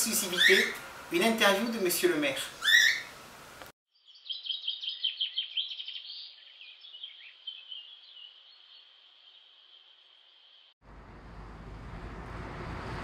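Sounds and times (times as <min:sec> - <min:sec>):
small birds chirping: 0:00.2 - 0:00.8, 0:02.5 - 0:03.2, 0:03.9 - 0:10.8.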